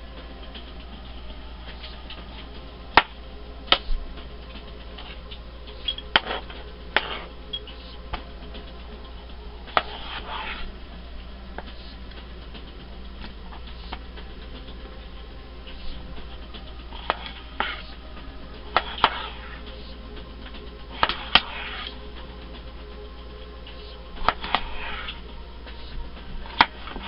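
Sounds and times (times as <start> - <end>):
knife scraping: 5.8 - 8.0, 9.7 - 10.7, 16.9 - 17.9, 21.0 - 22.0.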